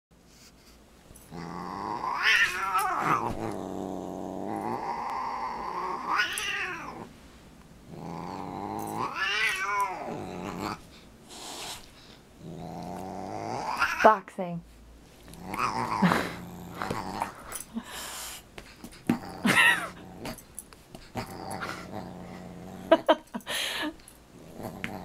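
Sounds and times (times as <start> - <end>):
cat growling and yowling: 1.3 - 7.1, 8.0 - 10.8, 12.5 - 14.1, 15.4 - 17.4.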